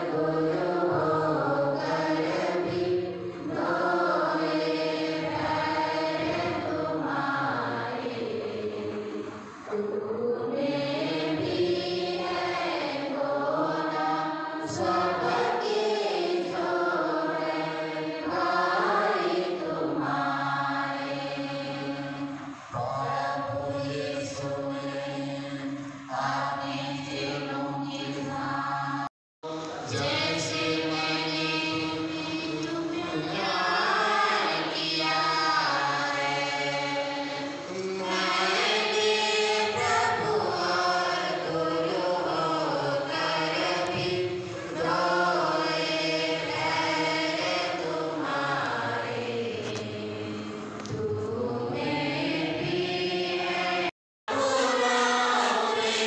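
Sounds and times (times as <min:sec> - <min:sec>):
group singing a hymn: 0:00.0 - 0:56.0.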